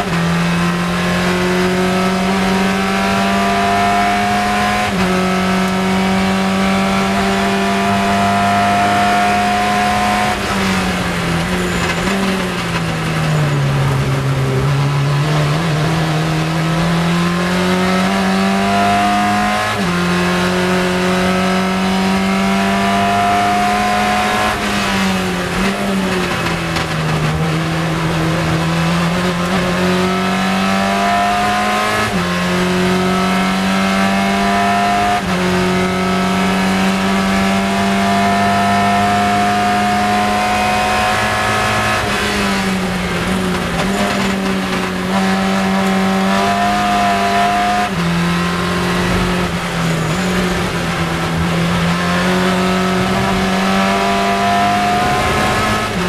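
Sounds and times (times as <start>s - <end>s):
racing car engine at high revs: 0.0s - 56.0s
wind and road noise: 0.0s - 56.0s.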